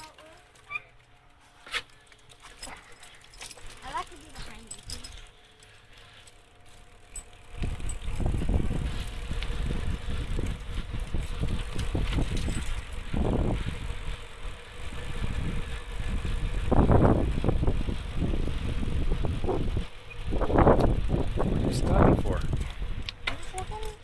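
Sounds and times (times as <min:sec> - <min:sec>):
bicycle tyre noise: 0:00.0 - 0:24.0
wind on microphone: 0:15.2 - 0:23.0.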